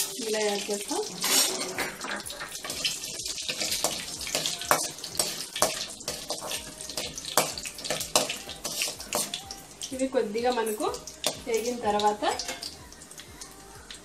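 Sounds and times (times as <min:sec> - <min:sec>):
metal spatula stirring in pan: 0:01.0 - 0:09.9, 0:10.6 - 0:12.8
seeds sizzling and popping in oil: 0:02.0 - 0:14.0.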